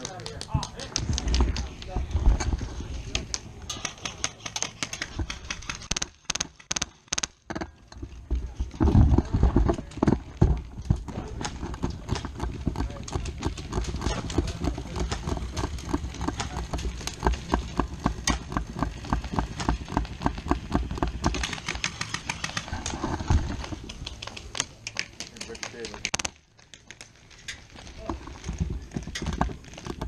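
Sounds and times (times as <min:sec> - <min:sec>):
airsoft gunfire: 0:03.8 - 0:07.5.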